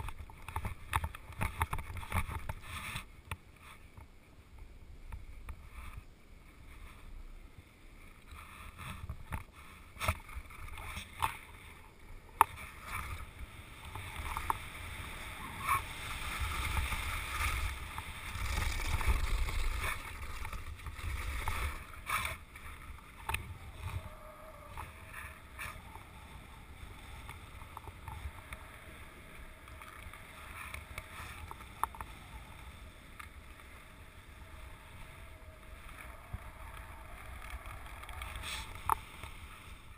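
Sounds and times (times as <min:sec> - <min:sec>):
low wind rumble on microphone: 0:00.0 - 0:39.9
skis hissing and scraping over snow: 0:02.1 - 0:03.9, 0:05.6 - 0:39.9.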